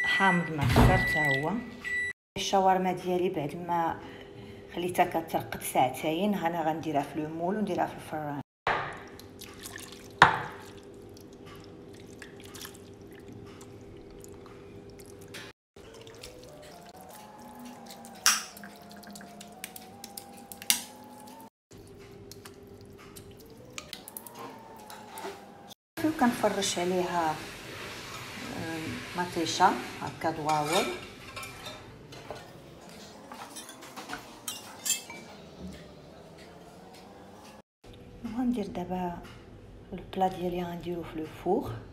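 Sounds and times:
wet meat slapping into dish: 15.0s - 21.4s, 22.1s - 24.4s
meat squelching: 15.8s - 25.2s
kitchenware clinking: 18.0s - 18.8s, 30.1s - 36.6s.

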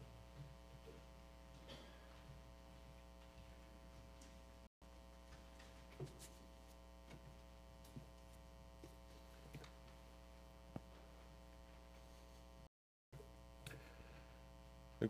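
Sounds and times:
faint electrical hum: 0.0s - 15.0s
faint clicks and knocks: 0.3s - 10.1s.

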